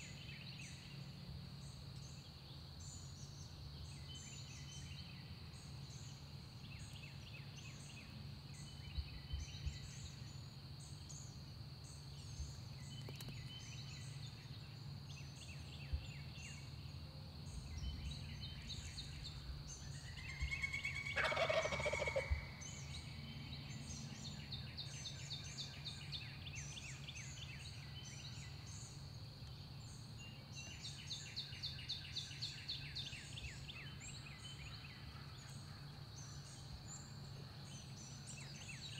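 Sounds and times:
turkey gobbling: 20.6 - 22.4.

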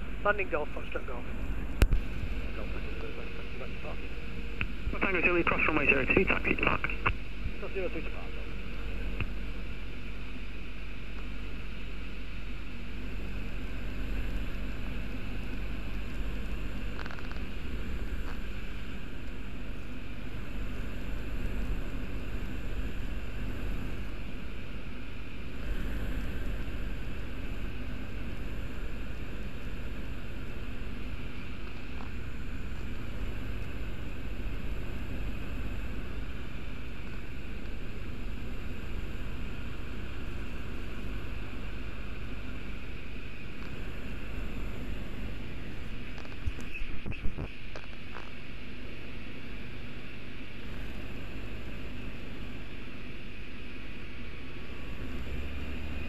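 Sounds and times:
microlight engine and propeller drone: 0.0 - 56.0.

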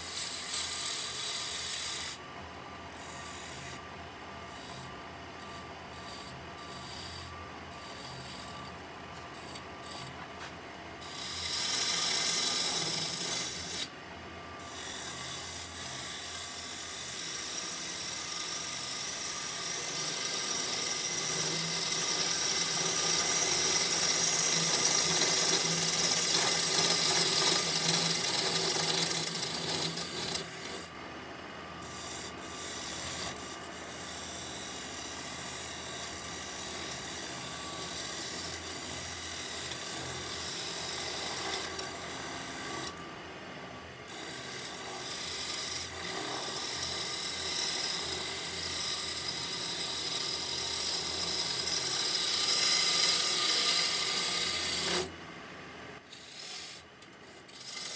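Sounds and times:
turning tool scraping wood on lathe: 0.0 - 2.2, 2.9 - 13.9, 14.6 - 30.9, 31.8 - 43.0, 44.1 - 55.1, 56.1 - 57.9.

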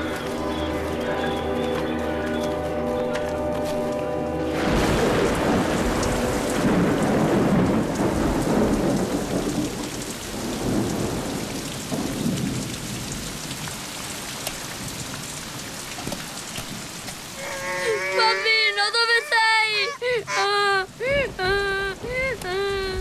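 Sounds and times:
heavy rain pouring: 0.0 - 23.0
low roll of thunder: 4.5 - 13.9.

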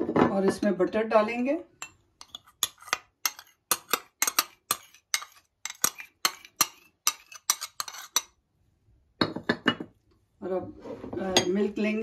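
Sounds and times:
metal spoon clinking on glass bowl: 1.8 - 8.3.

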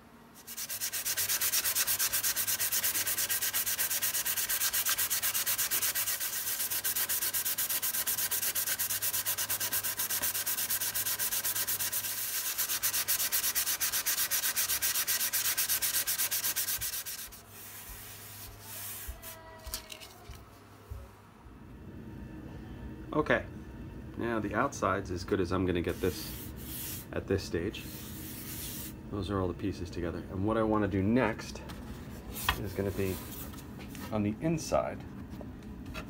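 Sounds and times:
sandpaper rubbing on wood: 0.4 - 19.4, 25.9 - 27.1, 27.8 - 28.9.

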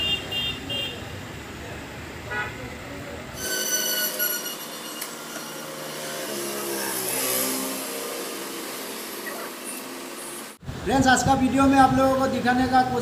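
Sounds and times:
high-pitched mechanical whine: 3.4 - 10.6.

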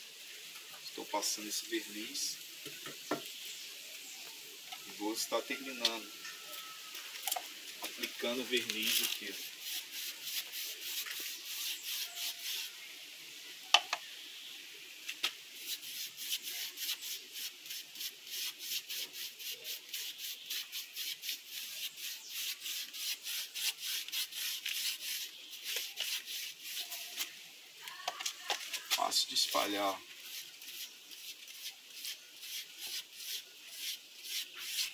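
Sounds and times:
scratchy brush strokes: 7.8 - 12.9, 15.6 - 27.4, 28.3 - 34.9.

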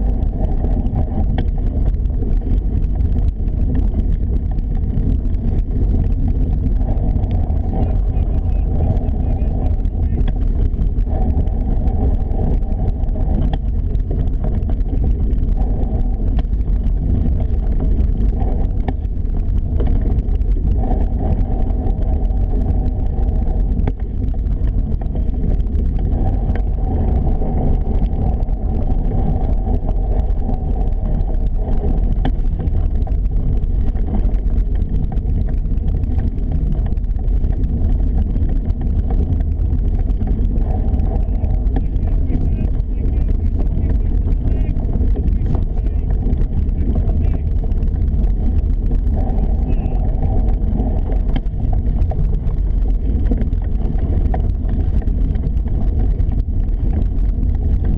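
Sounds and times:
wind buffeting microphone: 0.0 - 57.9.

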